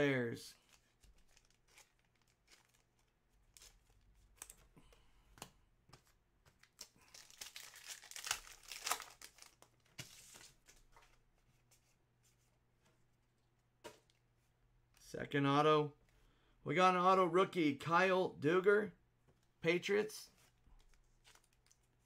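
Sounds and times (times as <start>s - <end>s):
card handling: 0.6s - 4.7s
wrapper tearing and crinkling: 1.1s - 4.6s, 6.6s - 9.8s.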